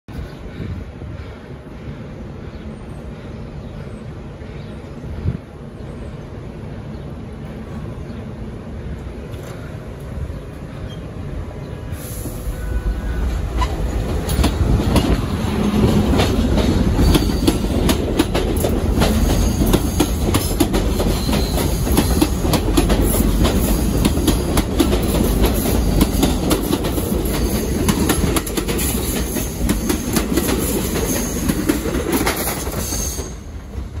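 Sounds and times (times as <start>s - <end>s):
subway train rumbling: 0.1s - 34.0s.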